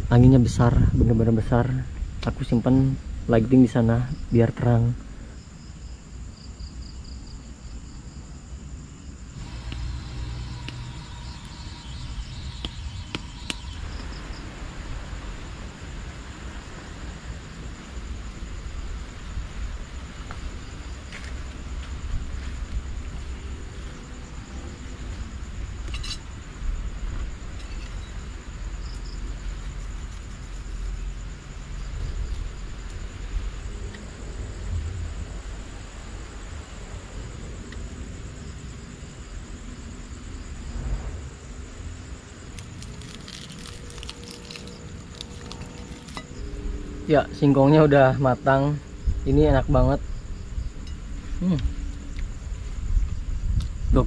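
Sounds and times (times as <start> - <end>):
wind buffeting microphone: 0.0 - 3.3, 52.3 - 54.0
insects chirping: 0.0 - 54.0
leaves rustling in wind: 0.0 - 54.0
steady high-pitched whine: 7.2 - 54.0.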